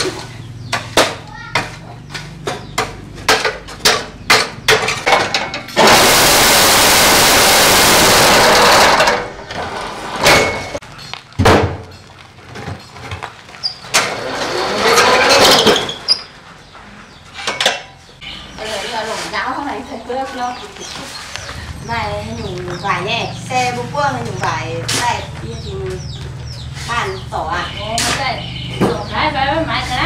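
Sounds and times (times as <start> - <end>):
loud steady rushing noise: 5.8 - 9.1.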